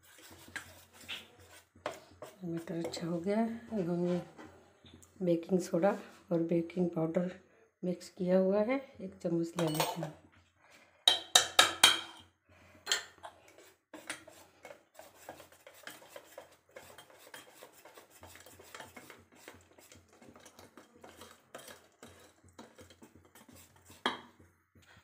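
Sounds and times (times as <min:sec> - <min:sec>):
whisk beating batter in bowl: 0:00.0 - 0:03.3, 0:13.4 - 0:24.5
metal clinks against steel bowl: 0:09.6 - 0:10.0.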